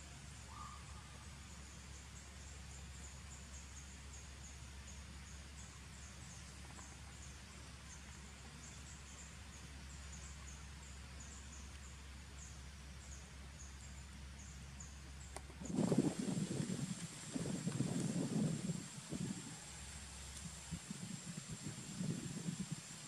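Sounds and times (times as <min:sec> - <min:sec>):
low hum and hiss: 0:00.0 - 0:23.0.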